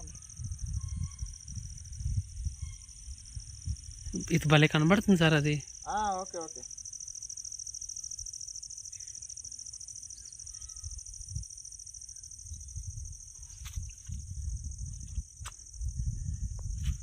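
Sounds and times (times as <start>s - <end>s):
wind buffeting microphone: 0.0s - 4.2s, 12.4s - 17.0s
insect chorus trilling: 0.0s - 17.0s.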